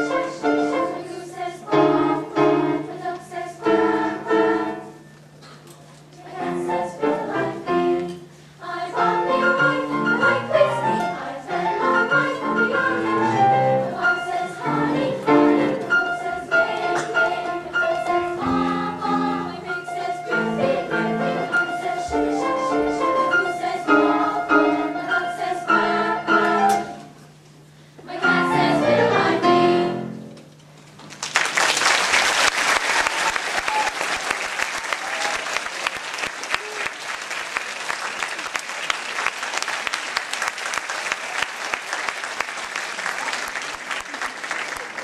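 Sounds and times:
girls' choir singing: 0.0 - 5.0, 6.2 - 27.0, 28.0 - 30.2
piano: 0.0 - 5.2, 6.3 - 27.3, 28.1 - 30.6
audience applause: 31.1 - 45.0.

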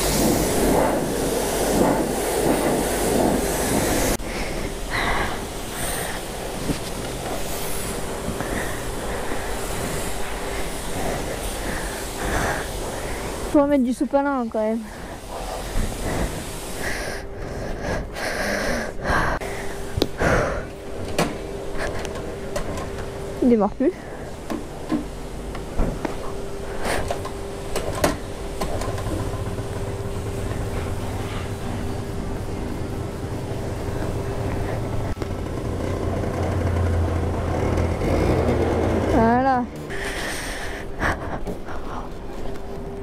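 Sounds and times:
faint hum: 0.0 - 38.0, 39.0 - 43.0
scooter engine running: 34.4 - 40.0.

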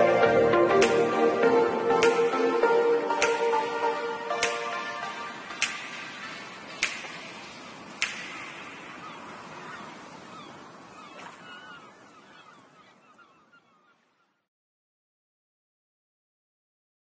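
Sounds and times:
background music: 0.0 - 8.9
faint chirping glides: 0.0 - 14.5.

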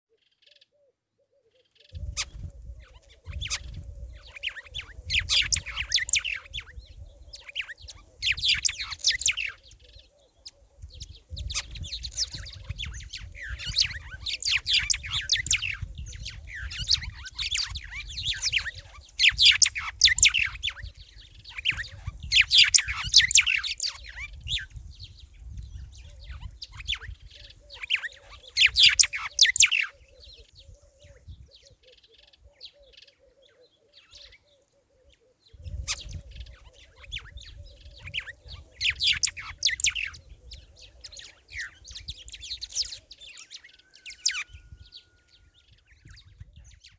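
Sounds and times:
small birds chirping: 0.1 - 46.9.

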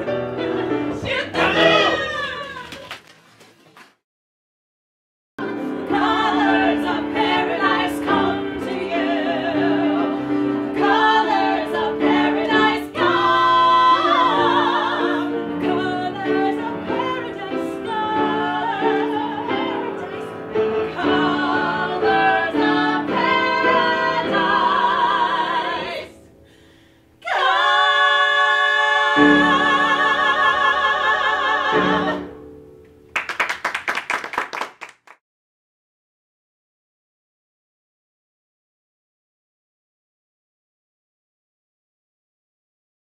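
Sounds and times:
women singing together: 0.0 - 2.9, 5.4 - 26.2, 27.2 - 32.4.

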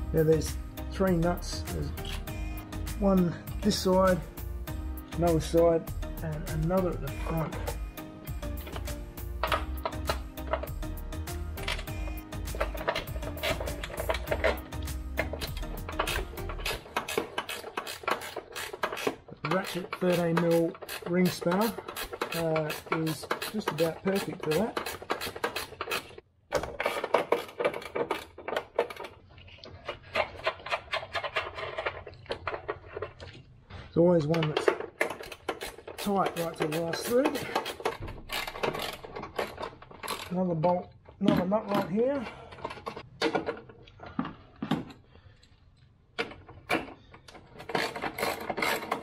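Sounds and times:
hand tools clicking on metal: 5.2 - 33.4, 34.1 - 49.0
ratchet spanner clicking: 11.6 - 26.2, 35.0 - 40.4.

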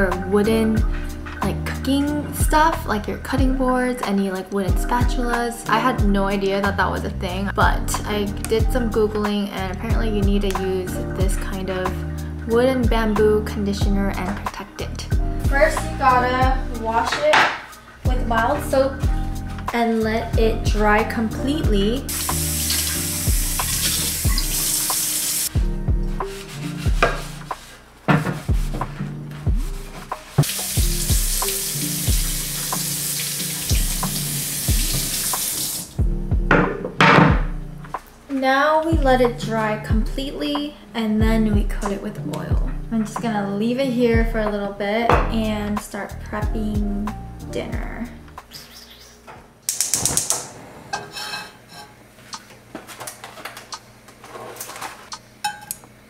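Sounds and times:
faucet water running: 21.9 - 25.6, 30.3 - 36.0
dishes and utensils clattering: 49.9 - 52.0.

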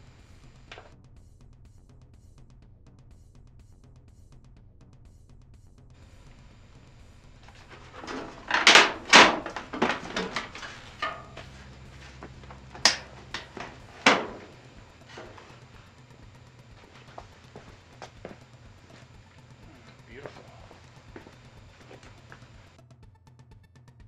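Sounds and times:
loud clattering knocks of tv cover: 7.5 - 15.6.

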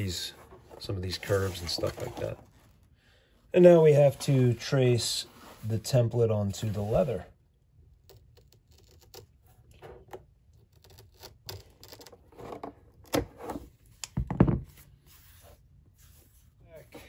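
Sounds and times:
scissors cutting thick leather: 8.0 - 9.4.

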